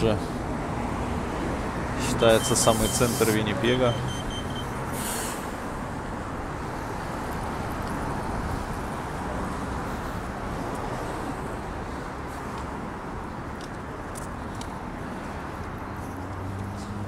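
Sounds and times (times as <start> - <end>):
cars driving past: 0.0 - 17.0
brief hiss: 2.7 - 3.4.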